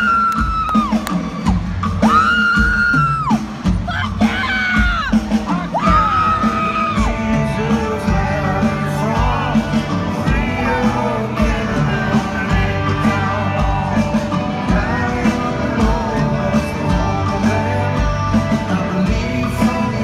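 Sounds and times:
bass: 0.0s - 20.0s
drums: 0.0s - 20.0s
electric guitar: 3.5s - 20.0s
man singing into a microphone: 5.8s - 20.0s.

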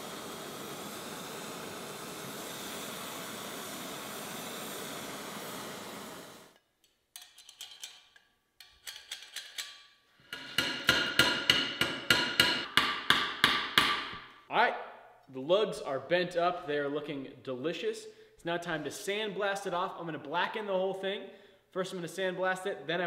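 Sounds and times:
torch hissing: 0.0s - 6.6s.

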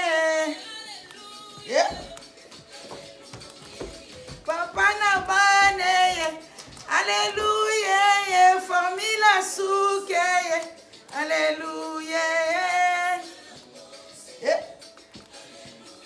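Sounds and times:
high voice singing: 0.0s - 16.0s
singer breathing: 6.4s - 6.8s.

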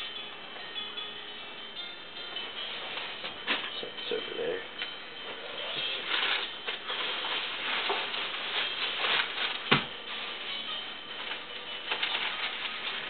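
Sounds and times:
newspaper rustling and crackling: 5.6s - 13.0s.

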